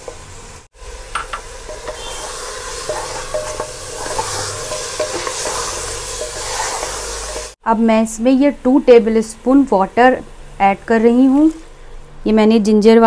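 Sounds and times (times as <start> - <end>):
meat sizzling in oil: 0.0 - 7.6
spatula scraping a pot: 1.7 - 7.6.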